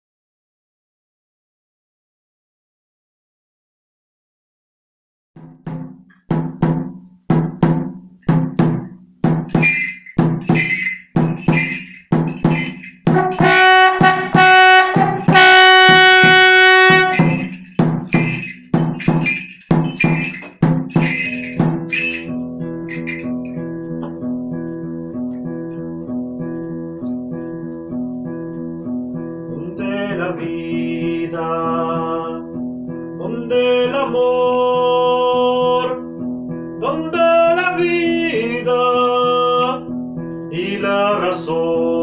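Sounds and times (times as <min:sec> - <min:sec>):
frame drum beating: 0:05.4 - 0:23.5
acoustic guitar picking: 0:07.4 - 0:41.2
brassy wind instrument notes: 0:13.1 - 0:17.5.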